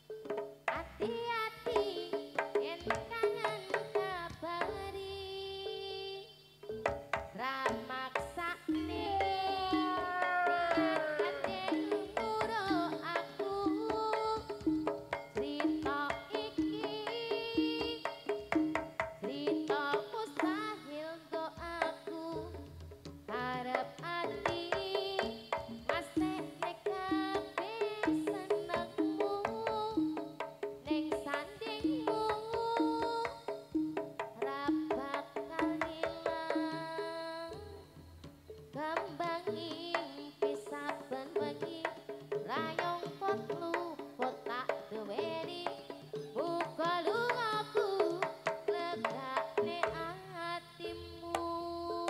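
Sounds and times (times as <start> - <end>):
hand drum strokes: 0.0 - 5.8, 6.6 - 52.0
gamelan music: 6.6 - 7.4, 8.6 - 21.0, 24.7 - 39.7, 40.3 - 52.0.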